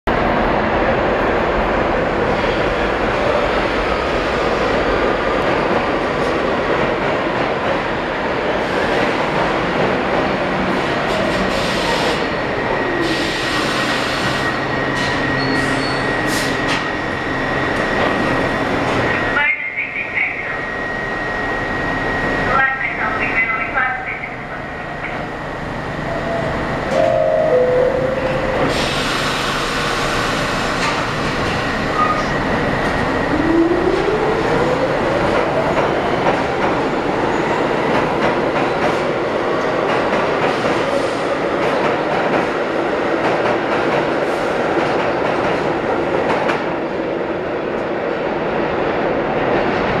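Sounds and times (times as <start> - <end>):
train rumble with wheel clicks: 4.3 - 17.0, 28.3 - 46.9
two-note falling door chime: 26.9 - 28.2.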